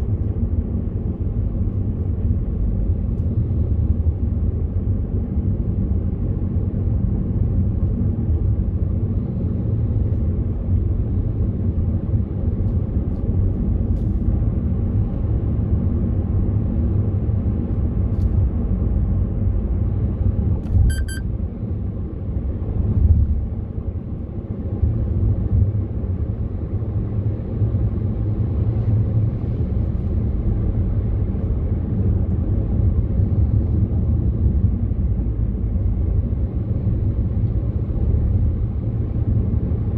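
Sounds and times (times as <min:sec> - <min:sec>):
car engine and tyre rumble: 0:00.0 - 0:39.9
short electronic beep: 0:20.8 - 0:21.2.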